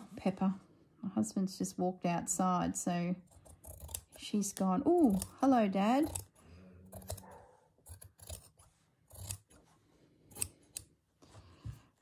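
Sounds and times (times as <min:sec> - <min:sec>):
shears snipping fabric: 0:03.3 - 0:09.6.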